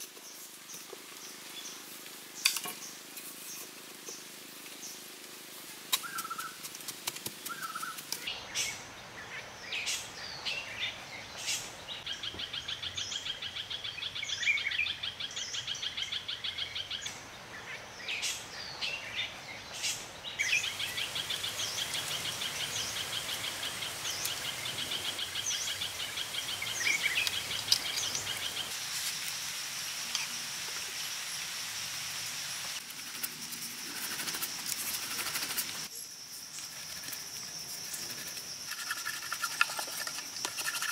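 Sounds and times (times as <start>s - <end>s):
birds chirping: 7.4s - 28.8s
pulsing insect trill: 32.9s - 40.9s.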